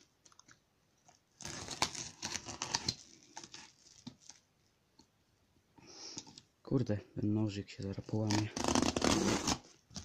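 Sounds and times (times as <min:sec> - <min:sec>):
box cutter slicing plastic wrap: 0:08.3 - 0:09.6.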